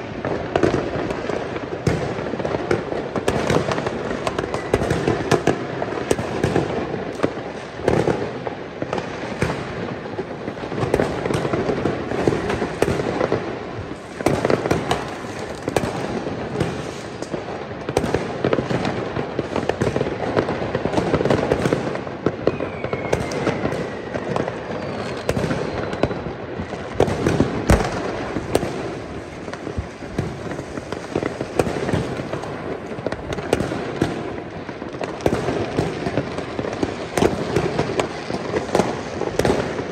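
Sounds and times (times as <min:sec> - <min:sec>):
fireworks crackling and banging: 0:00.0 - 0:39.9
firework whistles falling in pitch: 0:22.4 - 0:27.1.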